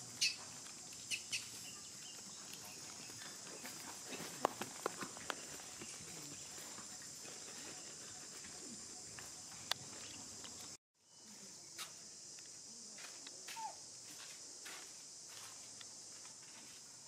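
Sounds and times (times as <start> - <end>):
insect chorus drone: 0.0 - 17.0.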